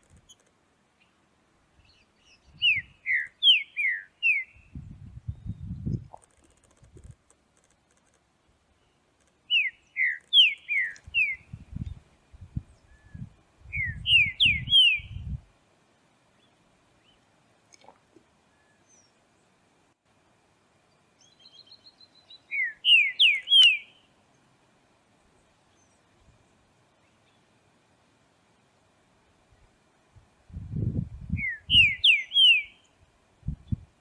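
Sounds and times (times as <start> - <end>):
bird whistling song: 1.8 - 6.0, 9.5 - 11.9, 12.8 - 15.4, 21.2 - 24.1, 31.3 - 32.9.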